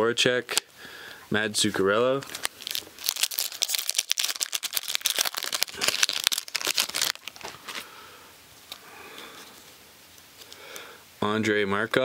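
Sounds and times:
plastic wrapper crinkling: 2.2 - 7.9.

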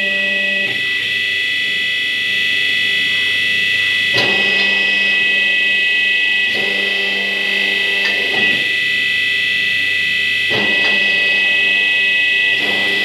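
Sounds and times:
hydraulic pump whine: 0.0 - 13.0
machine hum: 0.0 - 13.0.

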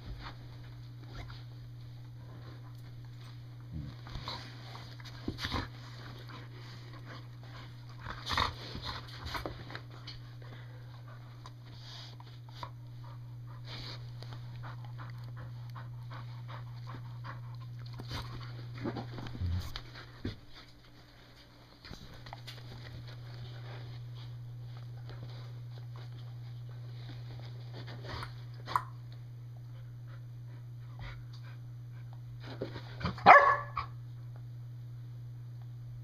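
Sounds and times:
dogs panting: 4.2 - 21.5
dogs scuffling with fabric: 17.9 - 28.6.

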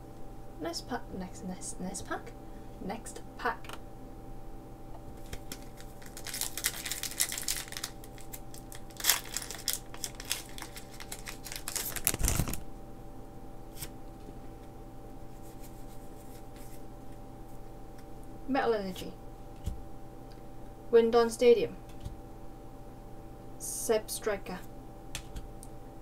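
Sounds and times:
foil wrapper tearing and crinkling: 5.2 - 12.6.

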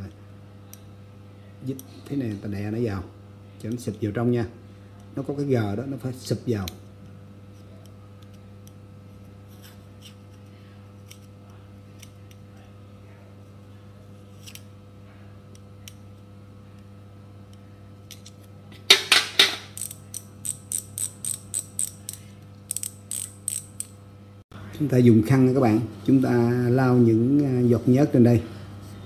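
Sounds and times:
freehub ratcheting clicks: 19.7 - 24.0.

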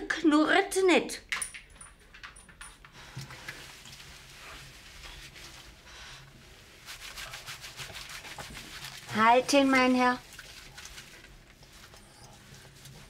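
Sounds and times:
water running and splashing: 6.8 - 13.0.

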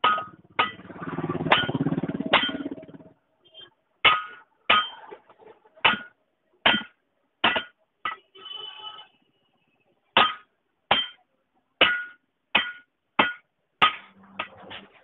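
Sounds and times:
hammer striking steel ring: 0.0 - 0.9, 1.5 - 2.8, 6.7 - 8.2, 10.2 - 11.2, 11.8 - 14.6.

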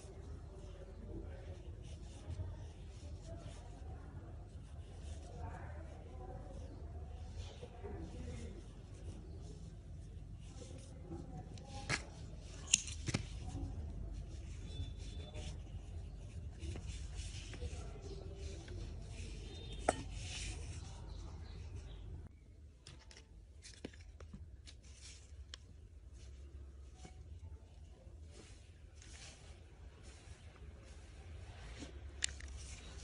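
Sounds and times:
yarn rubbing under fingers: 0.5 - 22.2.

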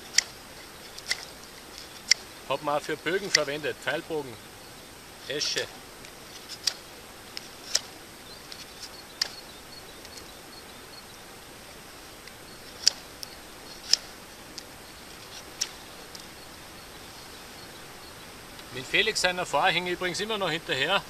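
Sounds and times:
knife cutting wood: 0.0 - 3.6, 5.3 - 9.4, 12.2 - 16.4.

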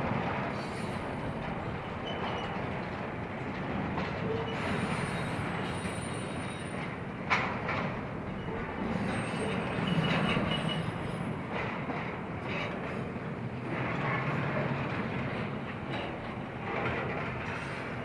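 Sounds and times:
freight train wheels on rails: 0.0 - 18.0
high wheel squeal: 4.4 - 6.9, 8.4 - 11.4.

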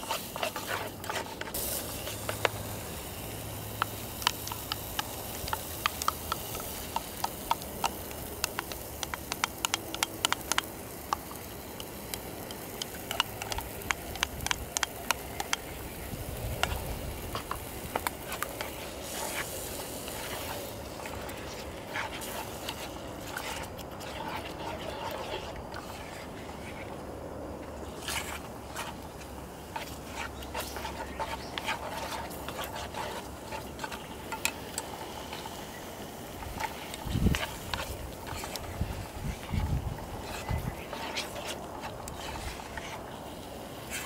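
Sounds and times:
food sizzling in pan: 0.0 - 23.6
oil crackling and spattering: 0.0 - 26.2.

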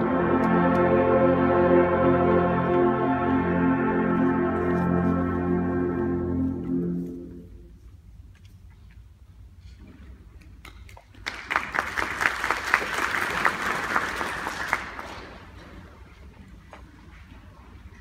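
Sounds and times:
audience applauding: 11.1 - 15.6.

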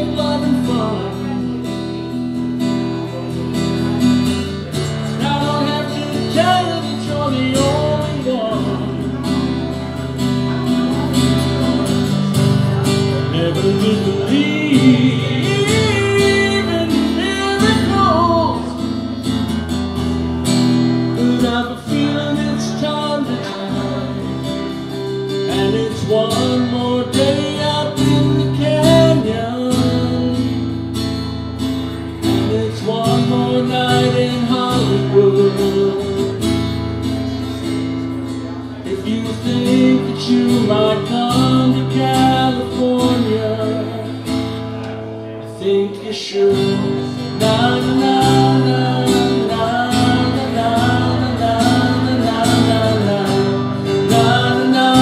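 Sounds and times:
acoustic guitar chords: 0.0 - 55.0
man singing: 0.0 - 55.0.

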